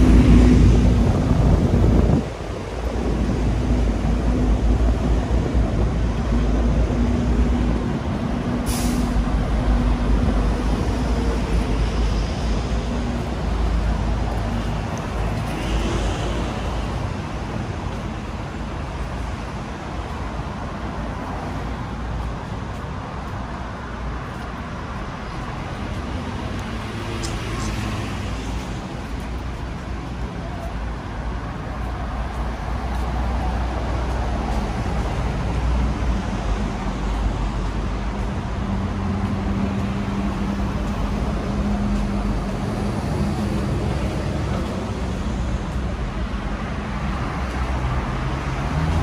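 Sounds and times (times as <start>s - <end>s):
heavy traffic rumbling: 0.0s - 49.0s
brief sharp hiss: 8.6s - 9.2s.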